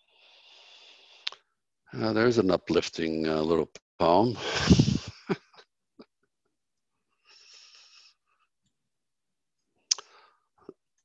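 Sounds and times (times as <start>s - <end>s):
faint breath: 0.0s - 1.4s, 7.2s - 8.5s
mouth click: 9.9s - 10.2s.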